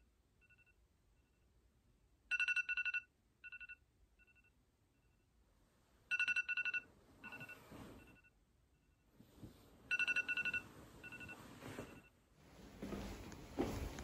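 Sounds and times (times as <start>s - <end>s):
phone alarm beeping: 2.3s - 5.2s, 6.1s - 8.4s, 9.9s - 12.2s
bedding rustling: 7.0s - 8.2s, 9.1s - 14.0s.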